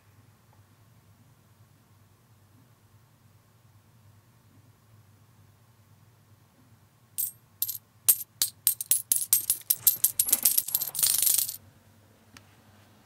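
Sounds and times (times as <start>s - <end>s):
coins clinking and jingling: 7.2s - 11.6s.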